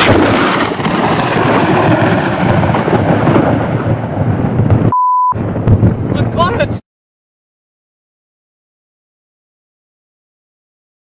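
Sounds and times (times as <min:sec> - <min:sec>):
thunder crash and rumble: 0:00.0 - 0:06.8
short steady beep: 0:04.9 - 0:05.4.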